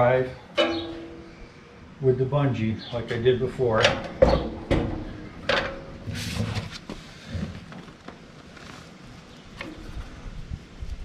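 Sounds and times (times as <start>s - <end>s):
sharp knocks: 0.6s - 1.4s, 3.8s - 6.0s.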